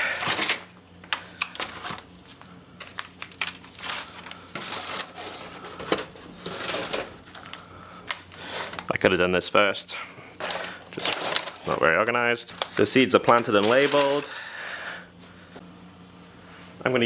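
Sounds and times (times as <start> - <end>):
plastic crinkling: 1.3 - 9.3, 10.4 - 14.3.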